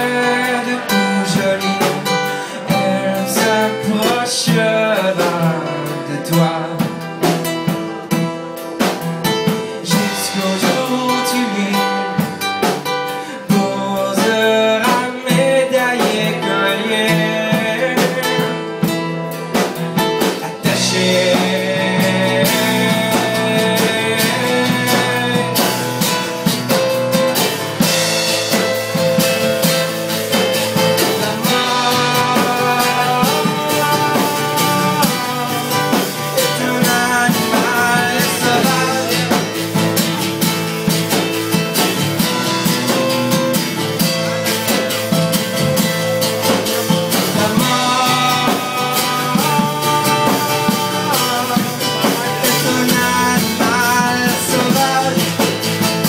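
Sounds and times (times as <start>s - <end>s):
man singing lead vocal: 0.0s - 8.0s, 8.6s - 40.5s, 44.6s - 56.0s
drums: 0.0s - 56.0s
second guitar: 0.0s - 56.0s
strummed acoustic guitar: 0.0s - 56.0s.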